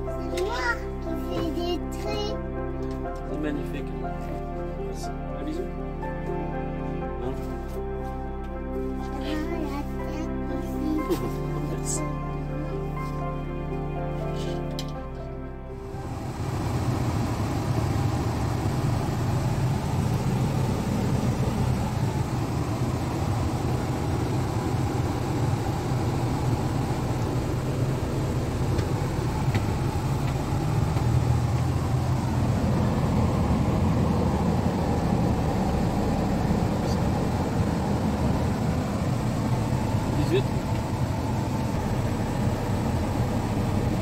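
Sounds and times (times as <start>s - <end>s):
road and cabin noise: 0.0s - 44.0s
engine drone inside vehicle: 4.3s - 44.0s.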